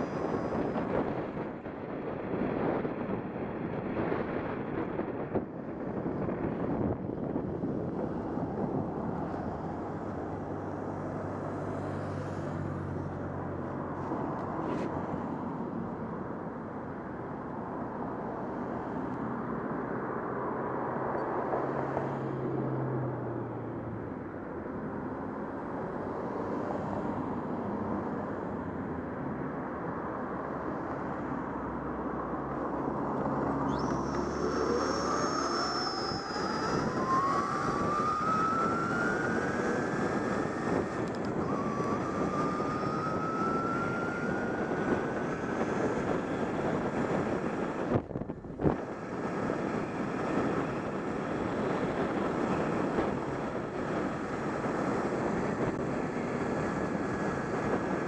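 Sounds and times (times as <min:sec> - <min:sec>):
wind rush on microphone: 0:00.0 - 0:58.0
electric bike motor whining: 0:33.5 - 0:47.9.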